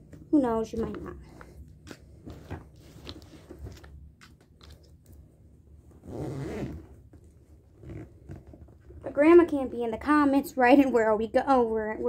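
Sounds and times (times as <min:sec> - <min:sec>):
clicks and rustles of handling: 0:00.0 - 0:05.2.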